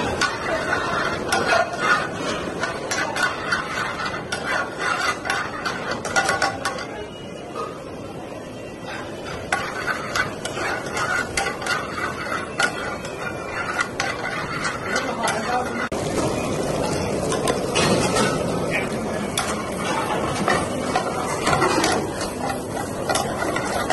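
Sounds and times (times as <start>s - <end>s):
metal ladle scraping frying pan: 0.0s - 23.9s.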